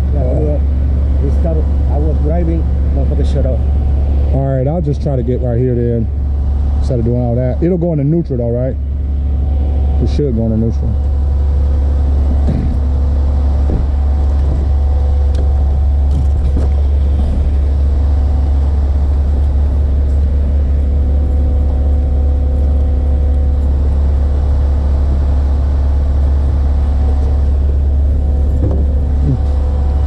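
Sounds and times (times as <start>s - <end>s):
truck engine idling: 0.0s - 30.0s.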